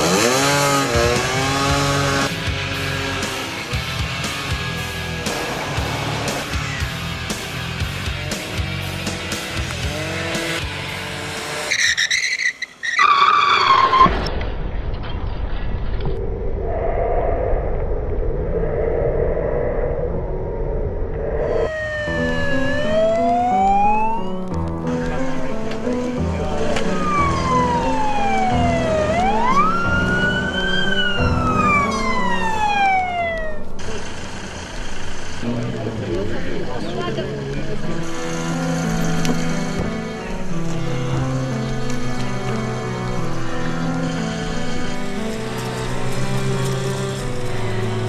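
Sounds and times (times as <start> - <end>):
music: 0.0 - 11.7, 21.5 - 48.0
scooter tyres screeching: 11.4 - 14.3, 37.3 - 48.0
low rumble: 14.2 - 36.8
ambulance siren wailing: 21.4 - 25.5, 26.4 - 34.0.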